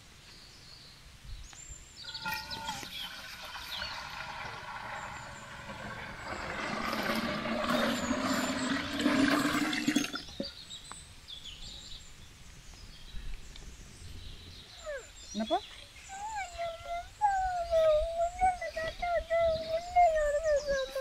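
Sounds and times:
water pouring into a metal pot: 2.2s - 10.4s.

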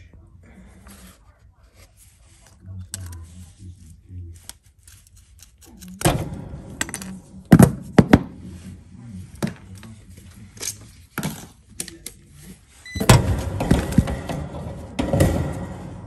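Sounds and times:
clattering and rustling: 12.9s - 16.0s.

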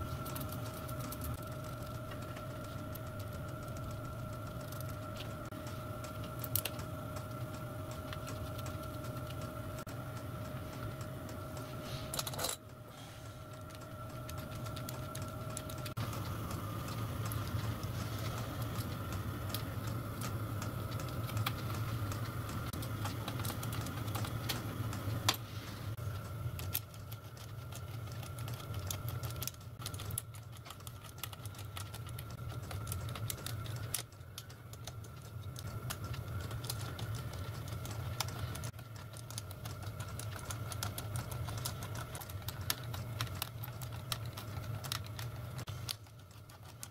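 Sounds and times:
steady low hum: 0.0s - 46.9s
metal parts clicking on workbench: 12.1s - 12.6s.

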